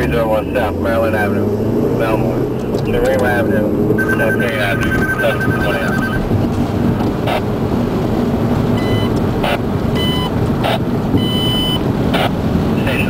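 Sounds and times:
car cabin road rumble: 0:00.0 - 0:13.0
short high electronic beeps: 0:04.0 - 0:06.3.

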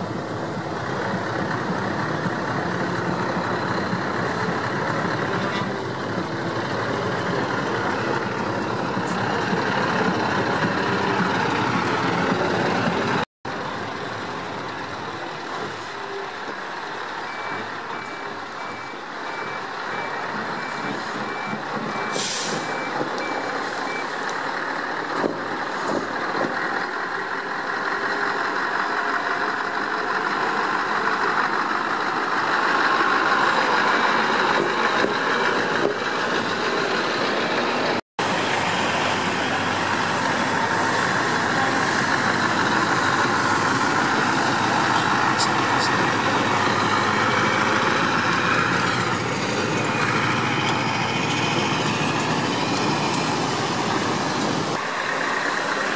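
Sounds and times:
trucks driving slowly past: 0:00.0 - 0:55.9
reversing alarm beeping: 0:17.2 - 0:24.1.

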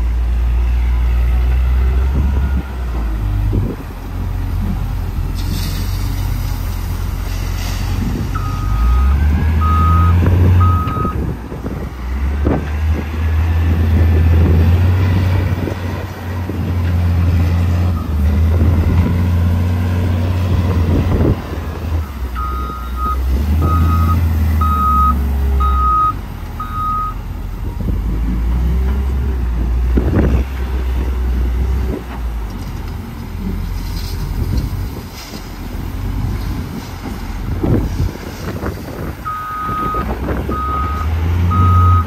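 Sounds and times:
diesel engine running: 0:00.0 - 0:42.0
reversing alarm beeping: 0:08.4 - 0:11.2, 0:22.4 - 0:27.2, 0:39.3 - 0:42.0.

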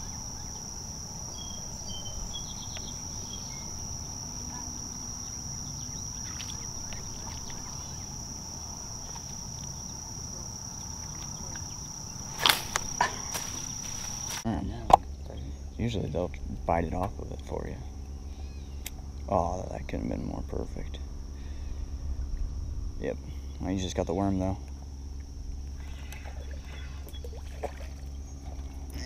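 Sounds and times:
insects trilling: 0:00.0 - 0:29.0
low outdoor hiss: 0:00.0 - 0:29.0
sharp clicks and splashes: 0:06.2 - 0:07.8.

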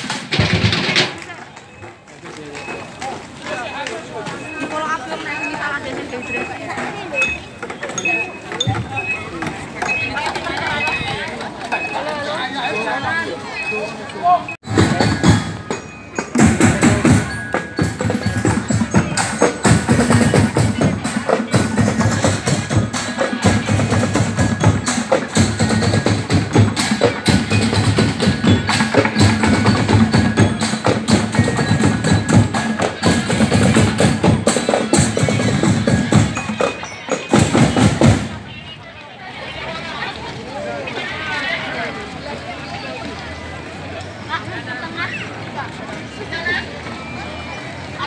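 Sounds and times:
drums: 0:00.0 - 0:48.0
percussion music: 0:00.0 - 0:48.0
bell-like mallet tones: 0:01.6 - 0:38.4.

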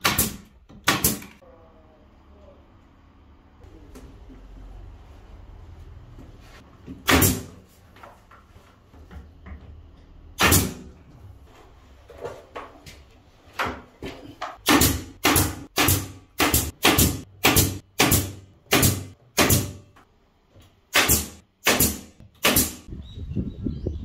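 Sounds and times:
nail gun firing: 0:00.0 - 0:01.4, 0:07.0 - 0:07.6, 0:10.4 - 0:10.9, 0:14.6 - 0:19.8, 0:20.9 - 0:22.9.

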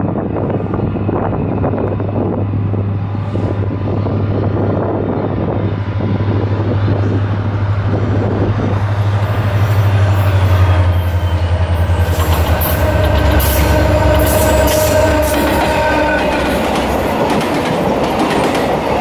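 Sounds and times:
diesel locomotive engine drone: 0:00.0 - 0:19.0
train wheel squeal: 0:08.7 - 0:17.5.

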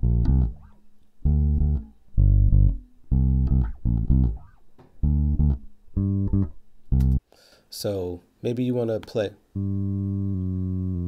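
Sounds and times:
plucked electric bass notes: 0:00.0 - 0:07.2, 0:09.6 - 0:11.0.

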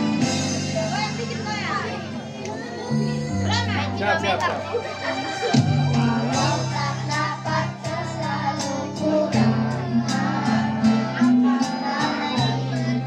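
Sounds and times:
backing music with bass and beat: 0:00.0 - 0:13.0
children singing into microphones: 0:05.0 - 0:13.0.

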